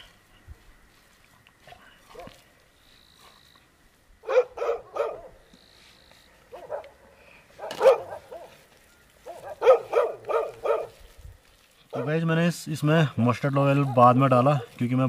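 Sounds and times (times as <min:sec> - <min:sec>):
dog barking: 0:01.7 - 0:02.4, 0:04.2 - 0:05.4, 0:06.5 - 0:07.0, 0:07.6 - 0:08.6, 0:09.2 - 0:11.0, 0:11.9 - 0:12.2.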